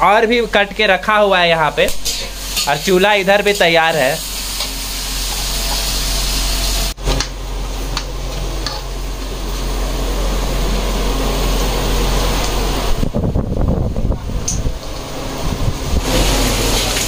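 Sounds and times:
food sizzling in a wok: 1.9 - 12.8, 16.0 - 17.0
low rumbling: 8.5 - 17.0.

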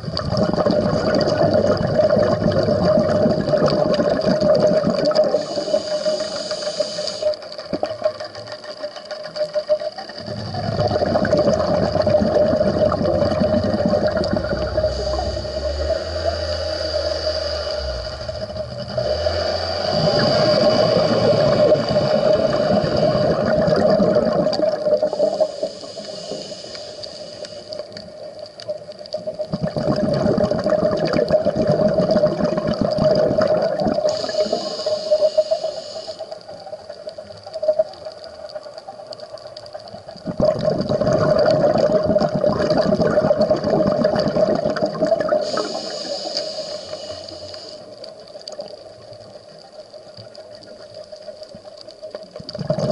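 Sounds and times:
bubbling exhalations underwater: 0.0 - 5.7, 10.1 - 25.8, 28.7 - 34.8, 39.9 - 46.0, 52.4 - 52.9
hissing inhalations: 5.3 - 7.4, 14.3 - 23.6, 25.0 - 28.0, 34.0 - 36.6, 45.4 - 48.0
steady hum: 10.2 - 28.7.

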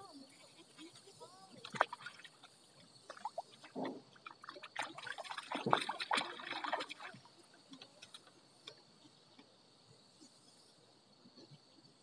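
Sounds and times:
water sloshing and splashing: 0.0 - 9.6.

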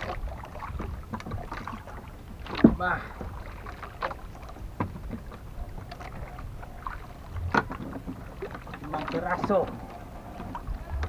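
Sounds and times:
sharp knocks on boat: 0.0 - 6.3
wind and water around hull: 0.0 - 11.0.

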